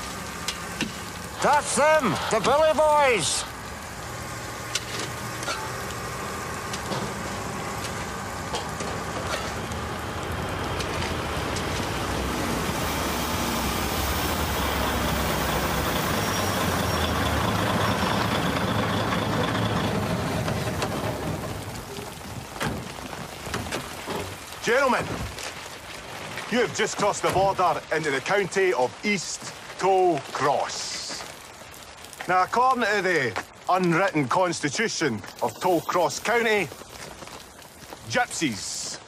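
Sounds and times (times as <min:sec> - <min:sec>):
lorry engine running: 0:00.0 - 0:22.6.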